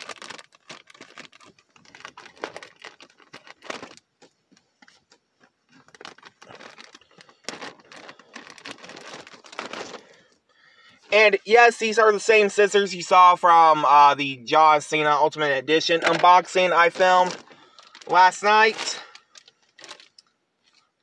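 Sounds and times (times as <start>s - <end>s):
plastic bag crinkling: 0.0s - 10.4s, 15.8s - 21.0s.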